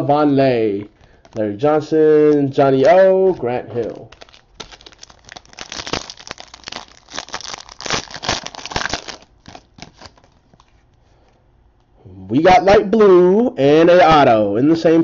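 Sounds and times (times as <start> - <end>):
foil wrapper crinkling and tearing: 2.9 - 10.8.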